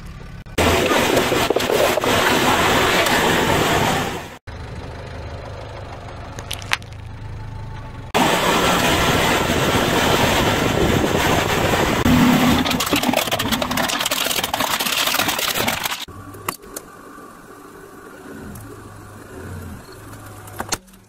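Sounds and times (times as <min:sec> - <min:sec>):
low engine hum: 0:00.0 - 0:12.8, 0:16.0 - 0:21.0
tyre crushing cans and bottles: 0:12.1 - 0:16.1.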